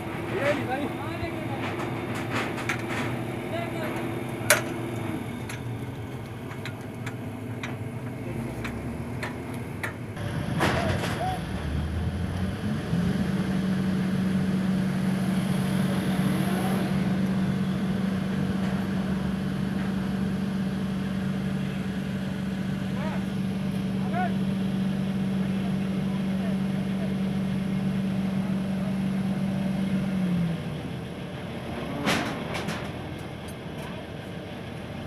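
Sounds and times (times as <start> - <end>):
diesel engine under load: 0.0 - 35.0.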